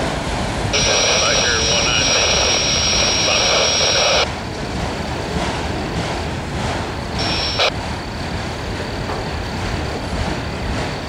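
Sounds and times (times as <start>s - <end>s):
freight train wheels rumbling on rail: 0.0s - 11.0s.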